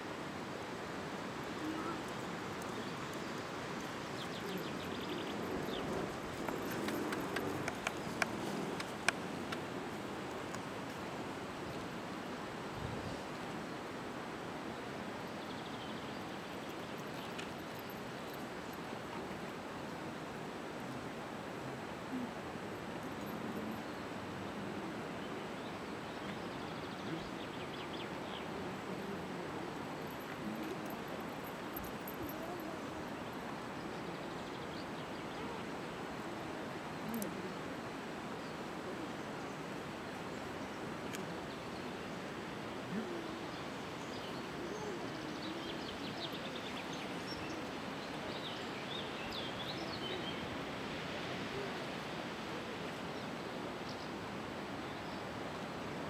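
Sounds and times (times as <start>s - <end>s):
outdoor background noise: 0.0s - 56.0s
wind: 0.0s - 56.0s
small birds chirping: 1.6s - 9.6s.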